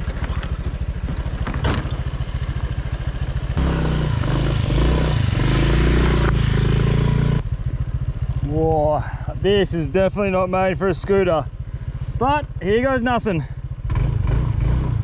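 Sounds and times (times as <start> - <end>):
motor scooter engine revving: 3.4 - 7.5, 13.8 - 15.0.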